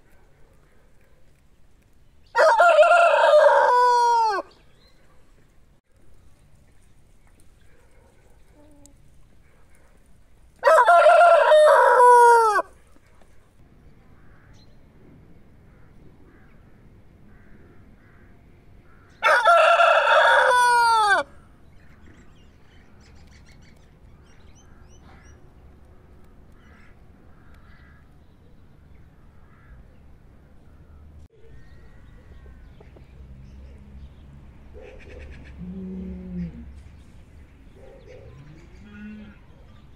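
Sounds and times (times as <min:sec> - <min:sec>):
rooster crowing: 0:02.4 - 0:04.5, 0:10.6 - 0:12.7, 0:19.2 - 0:21.3.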